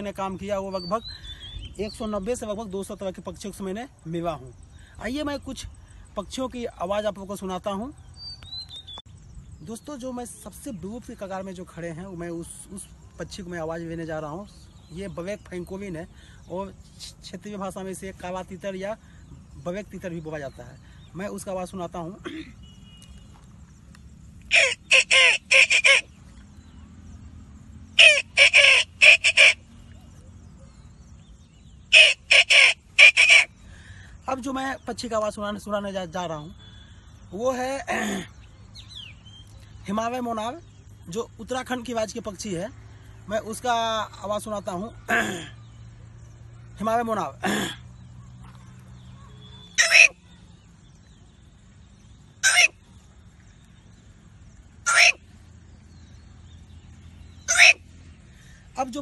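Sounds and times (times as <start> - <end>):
man imitating bird call: 24.4 - 26.2, 28.0 - 29.7, 31.9 - 33.7, 49.6 - 50.4, 52.4 - 52.9, 54.8 - 55.3, 57.4 - 57.9.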